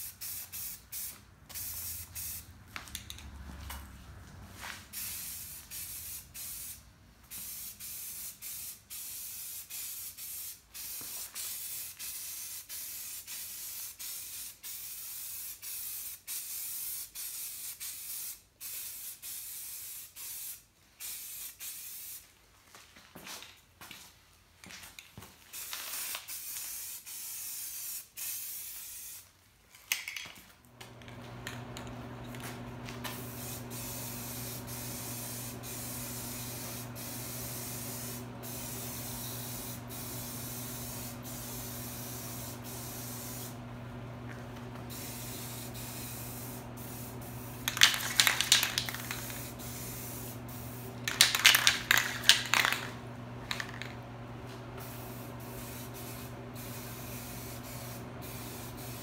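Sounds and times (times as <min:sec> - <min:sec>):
aerosol spray can hissing: 0:00.0 - 0:02.5, 0:04.9 - 0:22.2, 0:25.5 - 0:29.3, 0:31.4 - 0:43.6, 0:44.3 - 0:54.0, 0:54.8 - 0:59.0
steady electric hum: 0:30.8 - 0:59.0.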